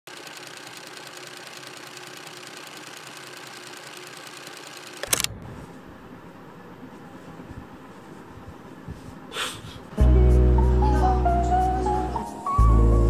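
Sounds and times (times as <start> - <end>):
rapid mechanical rattle: 0.1 - 5.4.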